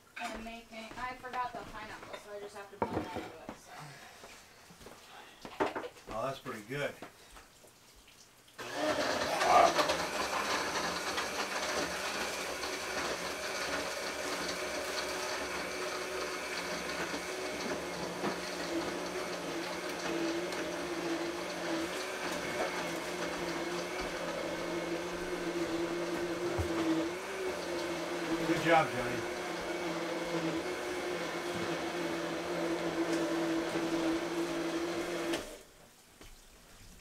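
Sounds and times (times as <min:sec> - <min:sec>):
electric blender whirring: 0:08.6 - 0:35.7.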